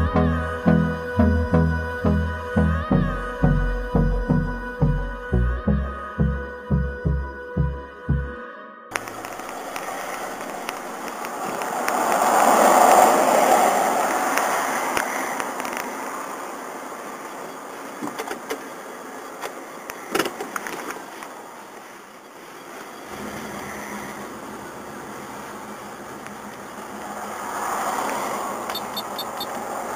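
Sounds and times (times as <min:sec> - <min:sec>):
muffled vehicle rushing noise: 0:09.0 - 0:16.7, 0:23.1 - 0:29.9.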